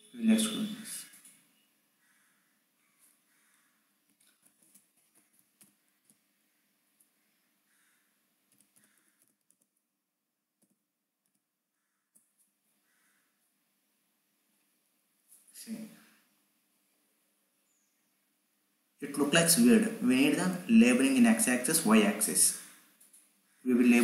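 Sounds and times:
mouse clicking: 4.1 - 6.2, 8.5 - 9.8
computer keyboard typing: 8.5 - 9.8.

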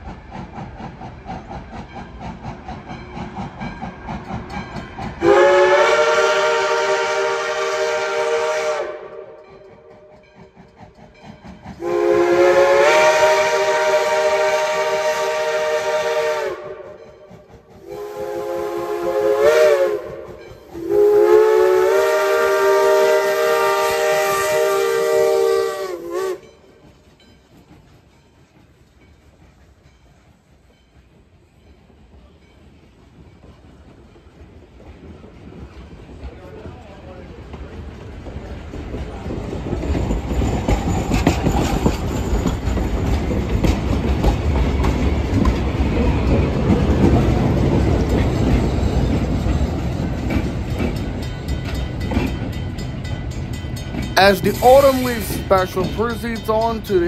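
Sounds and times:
train running past: 0.0 - 57.0
steam whistle blasts: 5.2 - 9.4, 11.8 - 17.0, 17.8 - 26.5.

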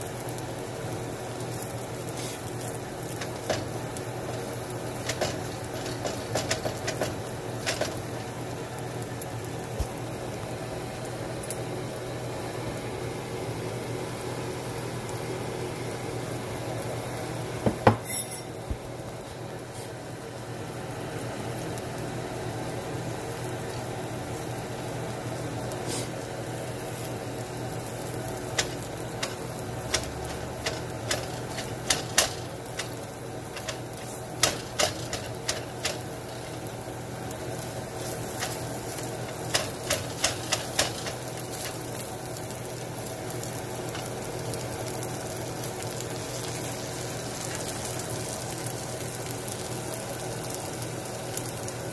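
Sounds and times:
food sizzling in frying pan: 0.0 - 51.9
spatula scraping and tapping pan: 3.1 - 3.8, 4.4 - 8.2, 28.6 - 36.1, 38.2 - 41.8.

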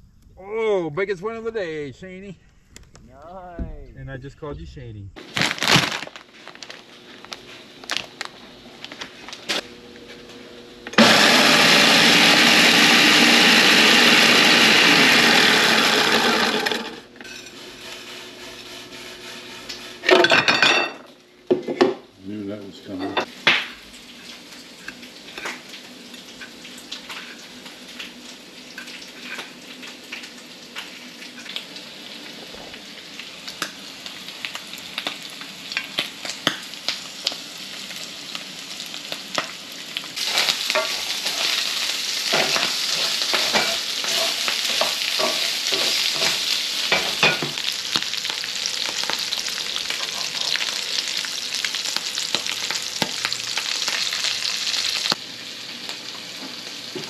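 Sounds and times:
fish frying in hot oil: 23.3 - 57.0.

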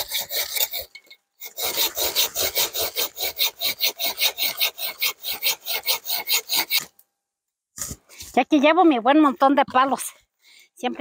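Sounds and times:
hand saw cutting wood: 0.0 - 7.0.

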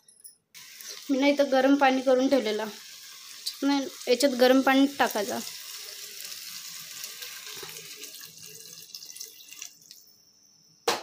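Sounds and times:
water pouring and splashing: 2.5 - 10.0.

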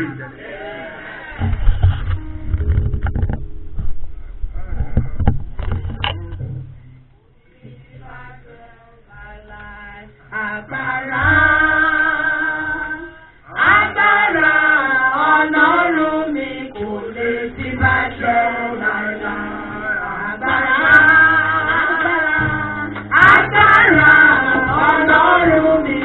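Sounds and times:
congregation singing a praise song: 0.0 - 1.7, 7.5 - 26.0.

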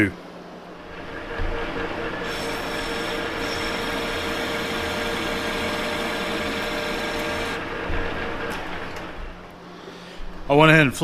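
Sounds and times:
lathe motor hum: 0.5 - 9.6
metal lathe cutting tool hiss: 2.2 - 7.6.

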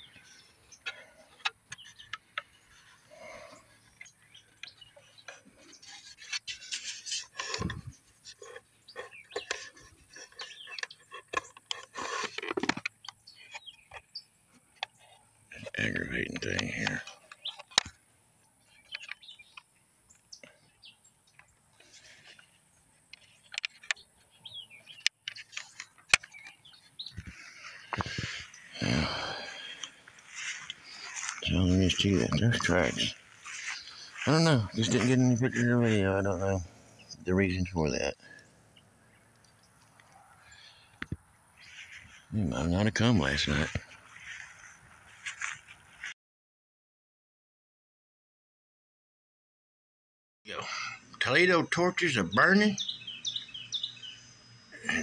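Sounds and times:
microphone handling rustle: 0.0 - 14.0, 23.2 - 37.2
small bird chirping: 0.0 - 17.8, 18.4 - 42.8, 51.8 - 55.0.

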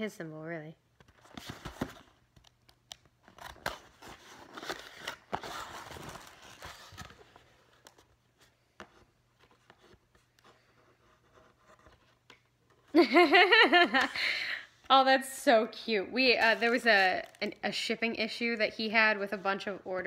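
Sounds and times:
cardboard box rustling and tearing: 3.4 - 7.4.

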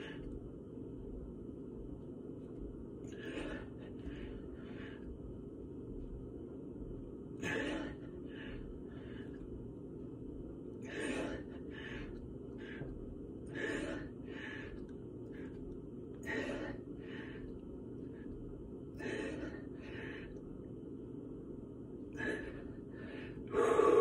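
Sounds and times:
steady low hum: 0.0 - 24.0
man breathing hard: 3.1 - 5.2, 7.4 - 9.5, 10.8 - 15.6, 16.2 - 20.5, 22.1 - 24.0.

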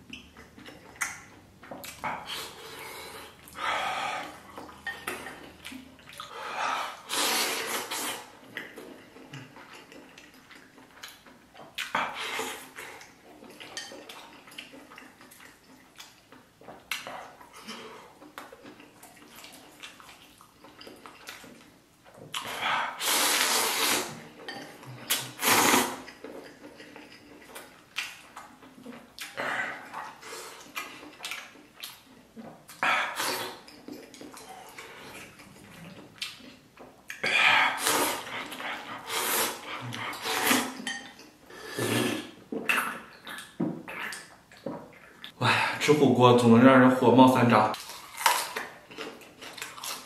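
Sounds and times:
chewing: 0.0 - 45.4, 47.7 - 50.0
person slurping noodles: 6.6 - 8.3, 22.4 - 24.2, 25.1 - 26.1, 32.8 - 33.7, 37.2 - 40.8, 41.5 - 42.9.

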